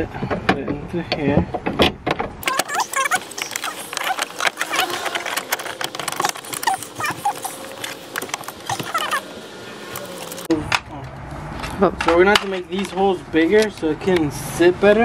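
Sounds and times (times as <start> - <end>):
short high squeaks: 2.4 - 9.3.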